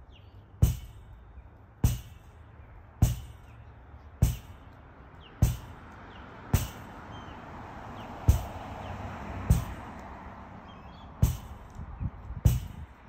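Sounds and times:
ball smacking against rebounder: 0:00.6 - 0:01.0, 0:01.8 - 0:02.3, 0:03.0 - 0:03.5, 0:04.2 - 0:04.6, 0:05.4 - 0:05.8, 0:06.5 - 0:06.9, 0:08.2 - 0:08.7, 0:09.4 - 0:09.8, 0:11.2 - 0:11.6, 0:12.4 - 0:12.8.

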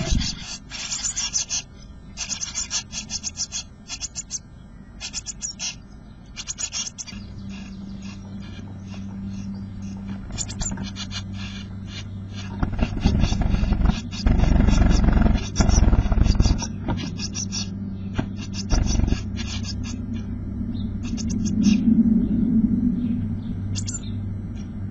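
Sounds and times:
nestlings begging calls: 0:00.0 - 0:24.9
steady low hum: 0:00.0 - 0:24.9
wings and feet scraping box: 0:12.3 - 0:17.6.

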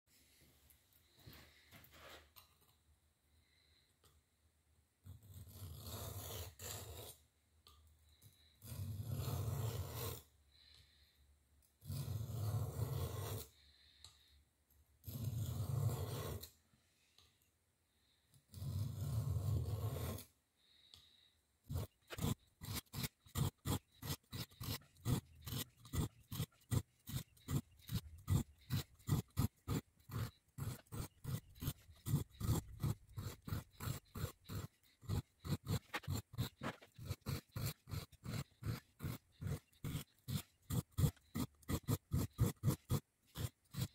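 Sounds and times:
knife scraping sharpening stone: 0:05.1 - 0:07.2, 0:08.6 - 0:10.3, 0:11.8 - 0:13.5, 0:15.0 - 0:16.5, 0:18.5 - 0:20.3, 0:21.7 - 0:43.9.

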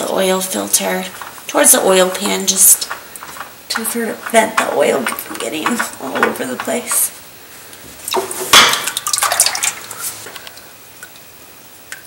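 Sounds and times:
oil splashing into metal pan: 0:08.0 - 0:10.0.

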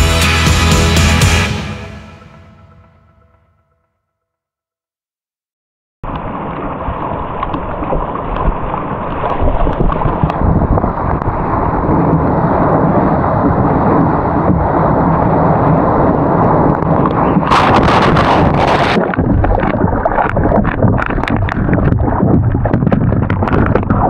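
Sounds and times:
churning surf water: 0:06.0 - 0:24.0
wind noise on microphone: 0:07.6 - 0:24.0.

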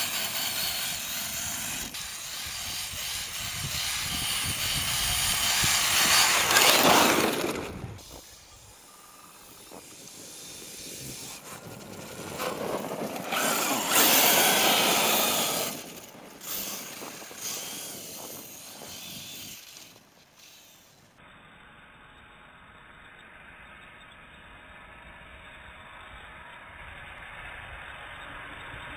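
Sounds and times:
electric motor whining: 0:00.0 - 0:20.9
tyres churning snow: 0:00.0 - 0:21.0.

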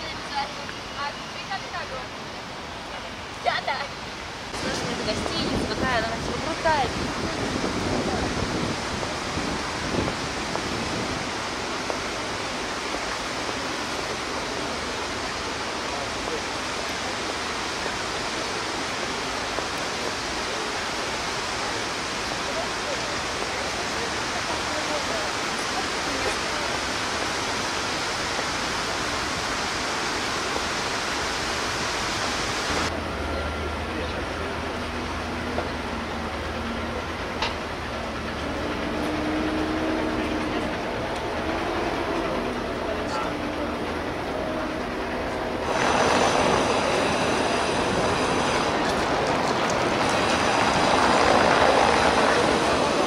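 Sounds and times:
distant traffic hum: 0:00.0 - 0:53.0
fountain jet spraying: 0:00.0 - 0:53.0
rushing hiss: 0:44.8 - 0:53.0.

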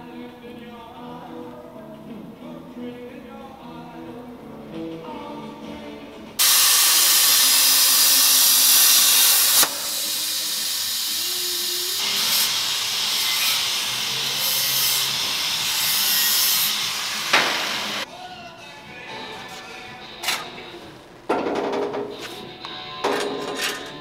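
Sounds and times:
grinder on steel: 0:06.4 - 0:18.0
plasma cutter hissing: 0:06.4 - 0:18.0.

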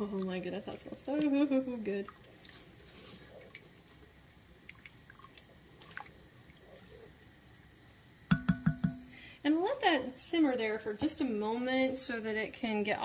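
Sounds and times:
wet squishing of sauce: 0:01.1 - 0:07.3
spoon ticking on pot: 0:08.3 - 0:09.1.

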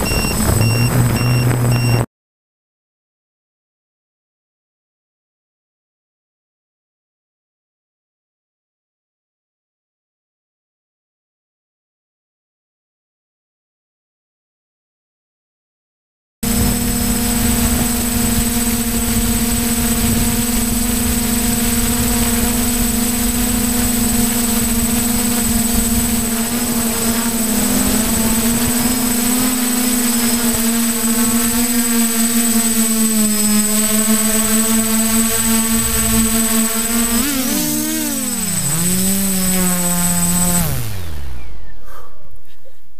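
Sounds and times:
wind rushing over microphone: 0:00.0 - 0:02.0, 0:16.5 - 0:29.6
drone motors buzzing and whining: 0:00.0 - 0:02.1, 0:16.4 - 0:42.4.

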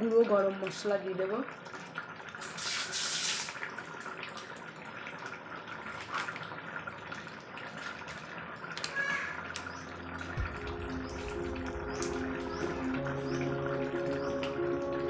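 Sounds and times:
curry bubbling in a pan: 0:00.0 - 0:14.8
bubbles popping: 0:09.4 - 0:15.0.

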